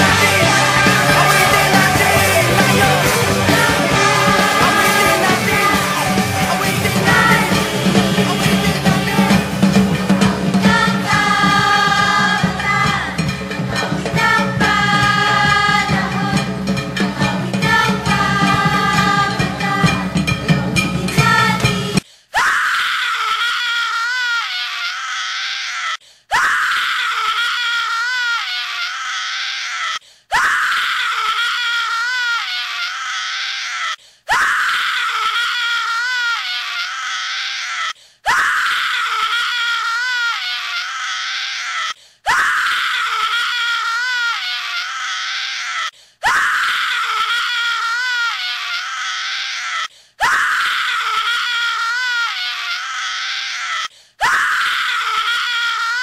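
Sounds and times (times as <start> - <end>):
high wavering scream: 0.0 - 9.7.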